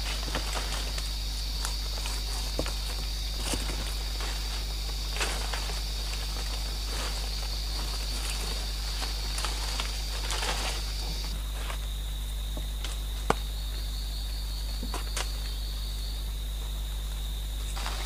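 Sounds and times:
branch snapping: 0:00.0 - 0:11.8
rustling of leaves: 0:00.0 - 0:18.0.

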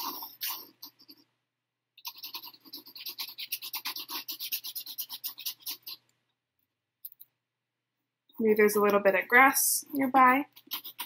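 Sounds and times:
pencil scratching on paper: 0:00.0 - 0:01.3, 0:02.0 - 0:06.0, 0:10.4 - 0:11.0.

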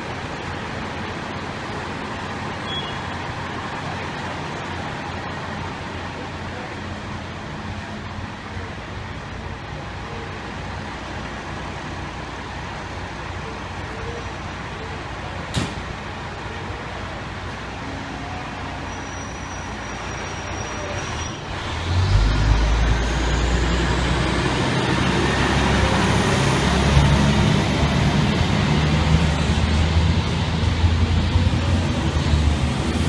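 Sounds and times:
fire truck diesel engine rumble: 0:00.0 - 0:33.0
street noise: 0:00.0 - 0:33.0.

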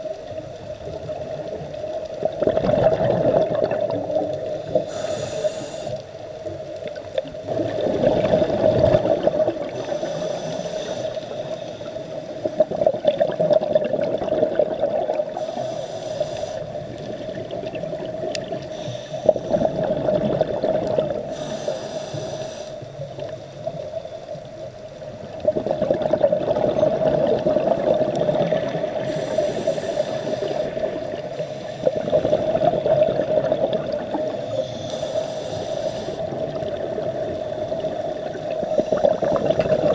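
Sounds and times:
exhaled bubbles underwater: 0:00.0 - 0:05.1, 0:06.5 - 0:10.5, 0:11.2 - 0:15.7, 0:16.3 - 0:21.6, 0:23.0 - 0:35.0, 0:35.6 - 0:39.9
regulator inhalation hiss: 0:04.6 - 0:06.3, 0:09.1 - 0:12.4, 0:15.3 - 0:17.3, 0:18.6 - 0:19.8, 0:21.2 - 0:23.1, 0:28.9 - 0:32.0, 0:34.3 - 0:36.4.

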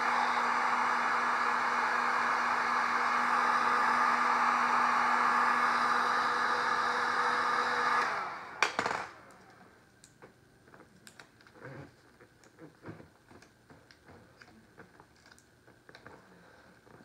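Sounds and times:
heat gun blowing: 0:00.0 - 0:09.0.

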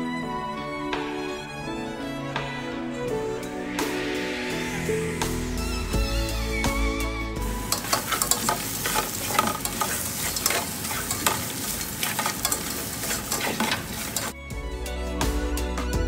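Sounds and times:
music: 0:00.0 - 0:16.0
meat sizzling in a pot: 0:07.4 - 0:14.4
utensil scraping a pan: 0:07.5 - 0:14.4.

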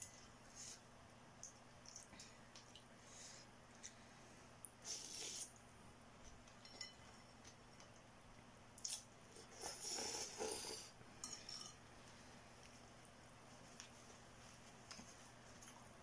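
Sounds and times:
faint steady hum: 0:00.0 - 0:16.0
noodles being slurped: 0:08.8 - 0:10.9.

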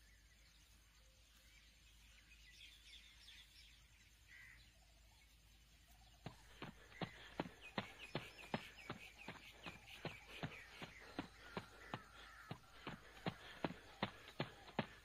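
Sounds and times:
faint bird calls: 0:00.0 - 0:15.0
running footsteps on asphalt: 0:06.2 - 0:15.0.

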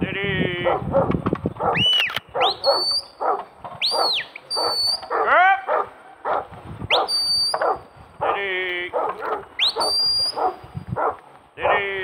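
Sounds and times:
dog barking: 0:00.6 - 0:11.8
rising whistle: 0:01.8 - 0:03.2, 0:03.8 - 0:05.1, 0:06.9 - 0:07.7, 0:09.6 - 0:10.4.

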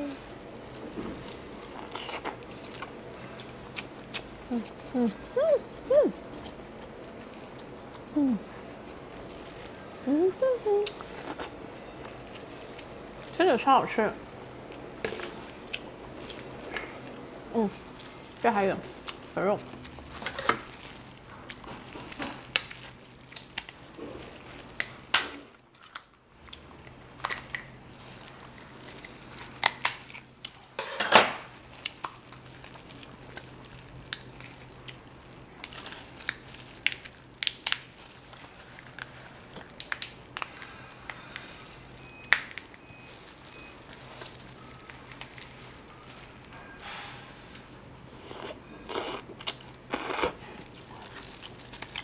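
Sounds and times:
plastic gloves crinkling: 0:00.0 - 0:05.5, 0:06.2 - 0:52.0
crab shell cracking: 0:19.8 - 0:27.8, 0:29.4 - 0:30.6, 0:31.8 - 0:41.6, 0:42.2 - 0:42.8.

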